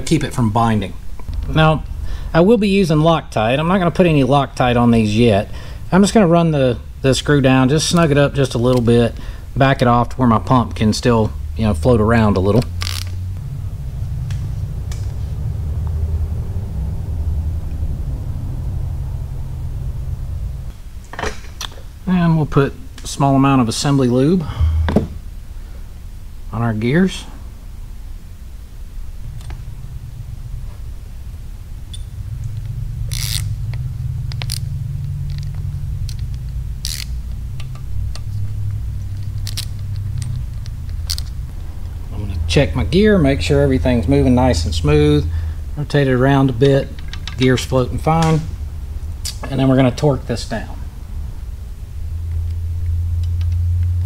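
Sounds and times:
steady low rumble: 0:00.0 - 0:21.0, 0:21.9 - 0:54.0
steady low hum: 0:00.0 - 0:54.0
small metal parts clicking: 0:12.8 - 0:13.2, 0:31.9 - 0:33.5, 0:34.2 - 0:38.4, 0:39.1 - 0:41.9.

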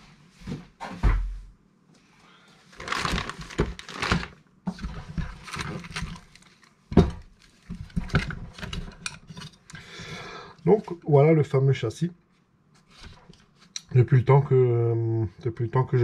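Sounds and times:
cardboard packaging rustling: 0:02.7 - 0:08.7.

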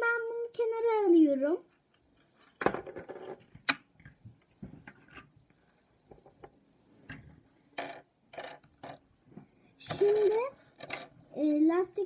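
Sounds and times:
plastic toy pieces clicking on table: 0:09.9 - 0:11.1.

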